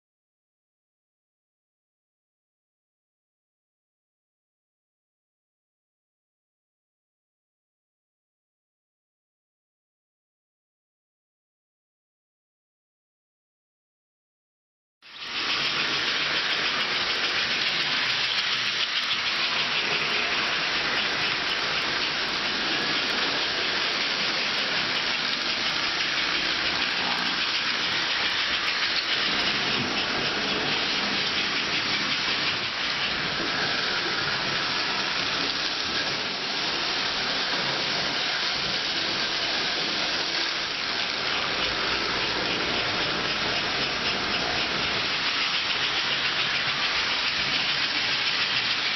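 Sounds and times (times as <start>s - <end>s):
toy electric train running: 15.0s - 48.9s.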